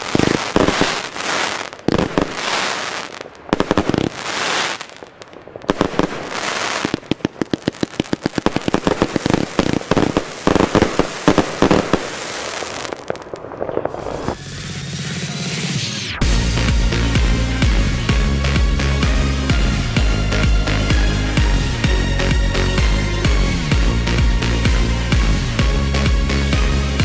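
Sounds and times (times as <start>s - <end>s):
firework stars crackling: 0.0s - 17.9s
firework shots and bursts: 0.0s - 21.9s.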